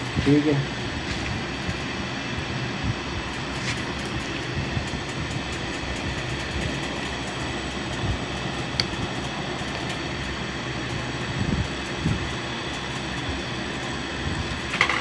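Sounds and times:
sewing machine humming: 0:00.7 - 0:15.0
screwdriver knocking on pulley: 0:03.3 - 0:11.0.

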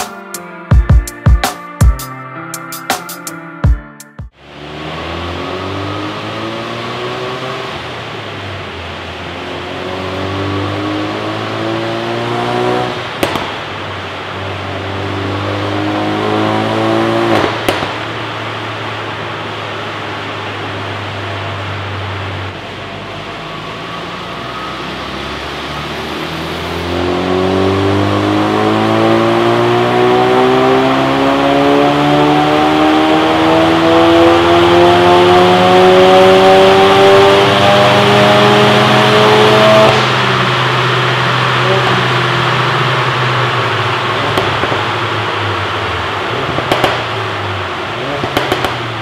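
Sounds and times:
car engine revving on dynamometer: 0:04.3 - 0:49.0
exhaust pops: 0:13.2 - 0:13.8, 0:17.3 - 0:18.2, 0:44.1 - 0:45.2, 0:46.3 - 0:47.2, 0:48.0 - 0:49.0.

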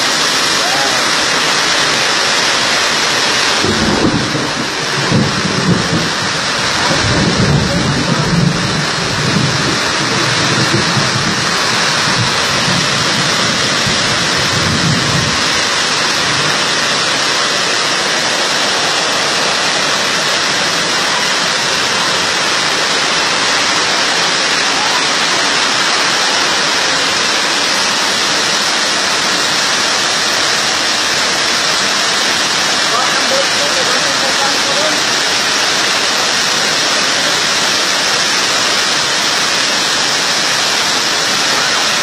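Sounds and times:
floodwater rushing: 0:00.0 - 0:42.0
heavy downpour: 0:00.0 - 0:42.0
low rumble: 0:03.5 - 0:17.2.

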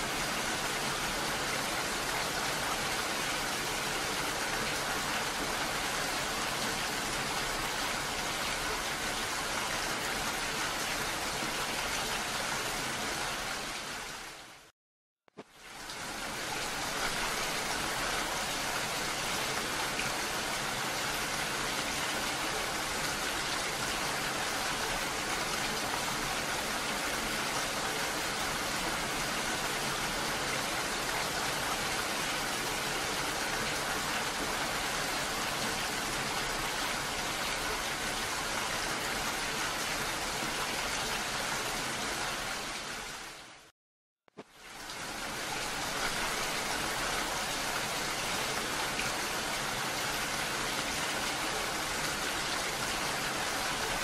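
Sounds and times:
heavy rain falling: 0:15.6 - 0:43.6, 0:44.6 - 0:54.0.

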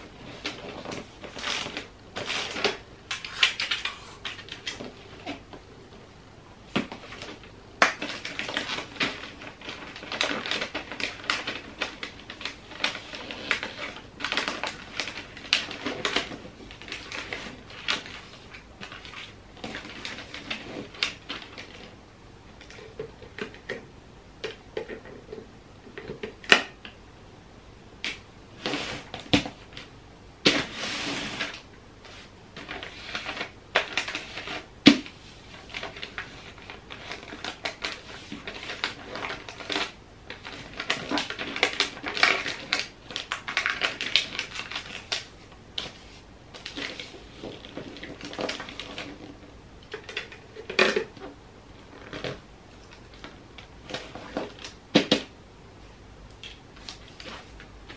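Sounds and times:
wrapping paper crinkling: 0:00.1 - 0:05.4, 0:06.9 - 0:21.9, 0:30.5 - 0:51.1.

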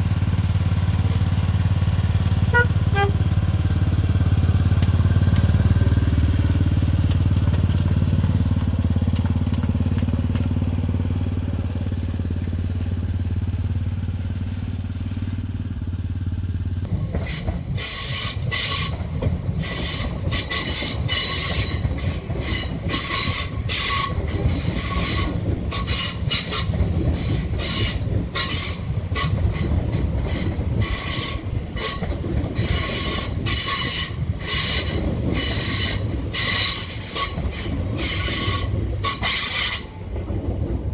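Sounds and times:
train rattling rumble: 0:00.0 - 0:40.9
train wheels squealing on rails: 0:00.4 - 0:01.6, 0:04.4 - 0:07.8, 0:14.4 - 0:15.6, 0:16.9 - 0:40.3.

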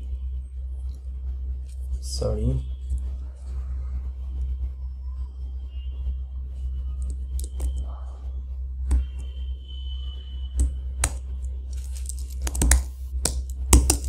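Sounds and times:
steady low hum: 0:00.0 - 0:14.0
computer keyboard typing: 0:10.6 - 0:14.0.

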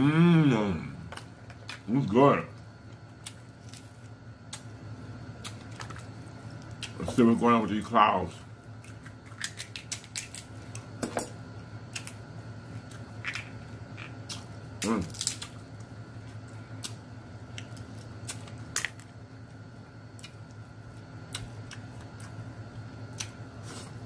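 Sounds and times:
person humming: 0:00.0 - 0:01.1
faint steady hum: 0:00.0 - 0:24.0
crab shells cracking: 0:08.8 - 0:10.9, 0:13.0 - 0:15.9.

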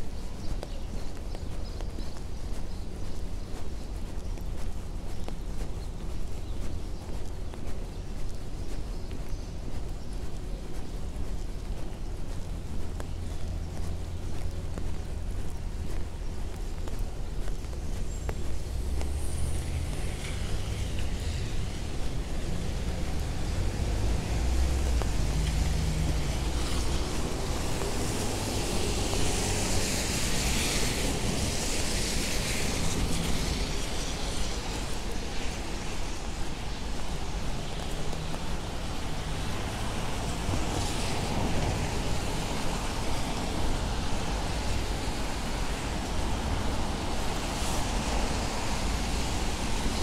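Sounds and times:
traffic rumble: 0:00.0 - 0:50.0
tyres hissing on wet road: 0:17.5 - 0:50.0.

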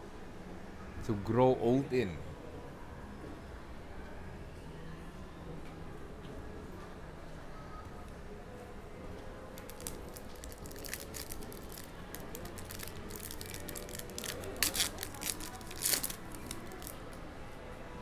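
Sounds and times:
foil wrapper tearing and crinkling: 0:09.6 - 0:17.0.

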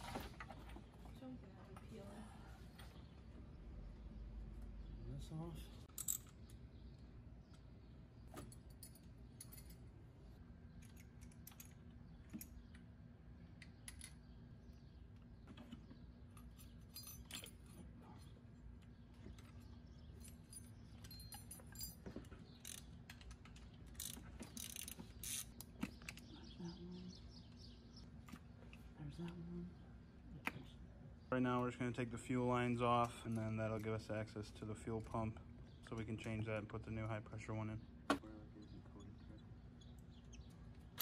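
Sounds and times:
low steady hum: 0:00.0 - 0:41.0
metallic clinks of hand tools: 0:20.2 - 0:22.1.

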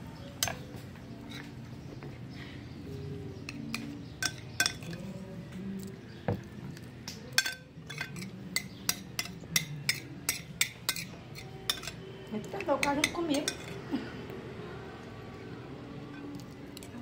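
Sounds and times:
spoon clinking against glass bowl: 0:03.5 - 0:05.0, 0:07.3 - 0:12.0, 0:12.6 - 0:13.8.

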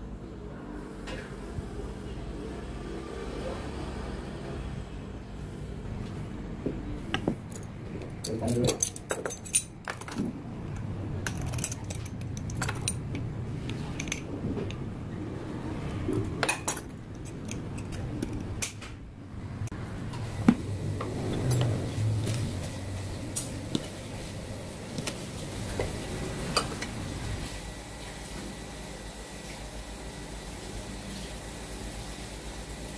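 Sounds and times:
metal measuring cups clinking: 0:07.5 - 0:10.2, 0:11.3 - 0:13.1, 0:16.4 - 0:18.7.

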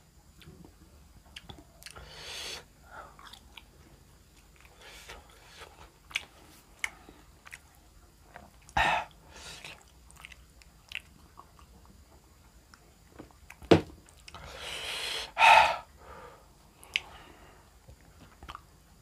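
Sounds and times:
person chewing food: 0:00.4 - 0:02.1, 0:03.0 - 0:12.0.

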